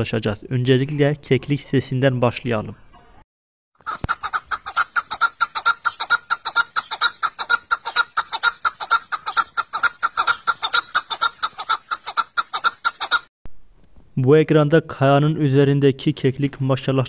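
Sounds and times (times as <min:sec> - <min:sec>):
partridge clucking calls: 0:03.8 - 0:13.3.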